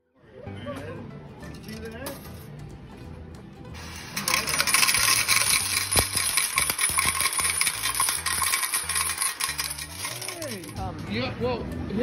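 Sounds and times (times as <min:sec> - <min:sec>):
metal tokens clattering into cup: 0:03.8 - 0:10.9.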